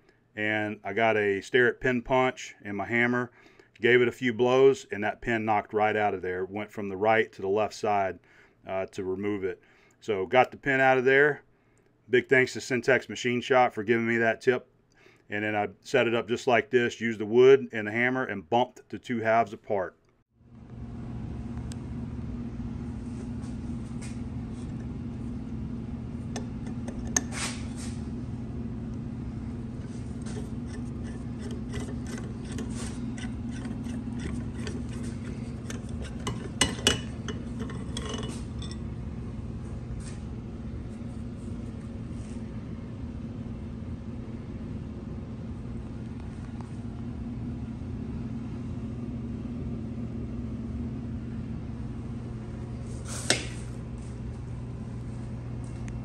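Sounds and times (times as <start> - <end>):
steady low hum: 20.4 - 56.0.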